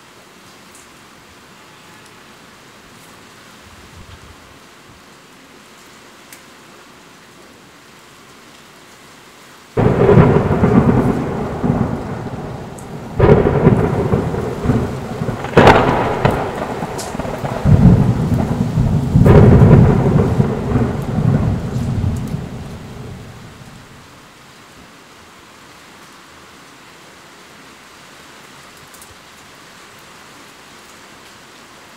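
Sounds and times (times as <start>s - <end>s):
steady rain: 0.0s - 31.9s
thunder cracking and rumbling: 9.8s - 24.0s.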